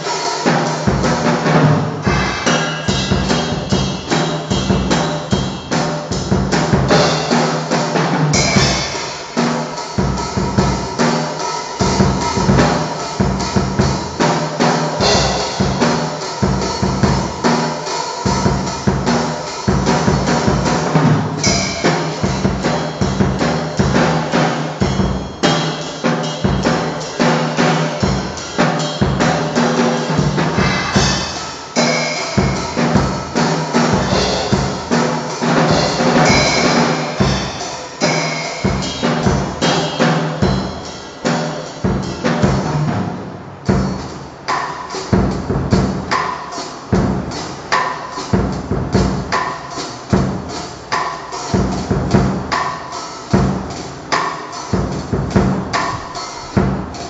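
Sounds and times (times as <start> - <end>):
fast drum kit playing: 0.0 - 57.0.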